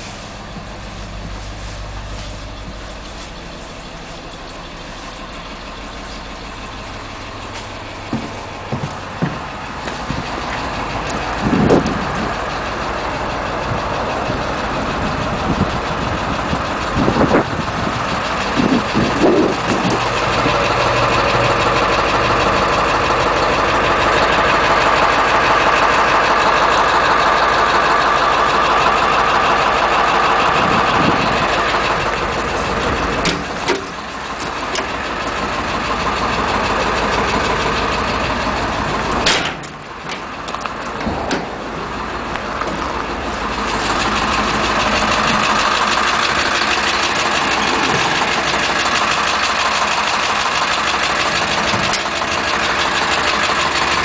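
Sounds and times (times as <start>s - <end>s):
diesel engine idling: 0.0s - 54.0s
short knocks: 8.1s - 10.4s.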